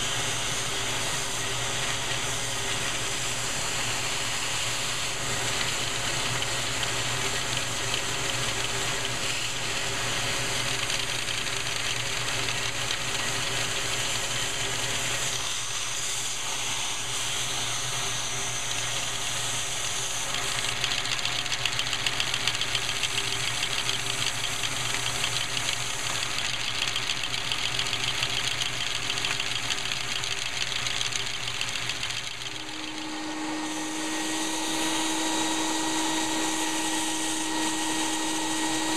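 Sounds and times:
handheld vacuum whirring: 13.3s - 38.9s
plastic engine pistons rattling: 20.7s - 32.4s
deep motor hum: 32.2s - 38.9s.

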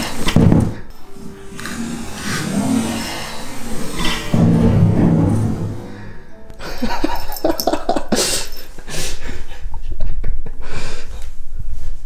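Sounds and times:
light background music: 0.0s - 9.1s.

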